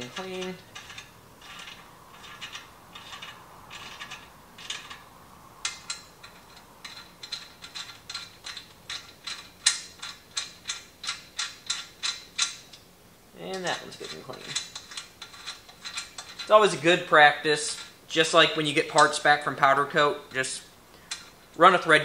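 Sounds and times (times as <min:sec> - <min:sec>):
ratchet clicking: 0:00.0 - 0:12.8, 0:13.5 - 0:16.5.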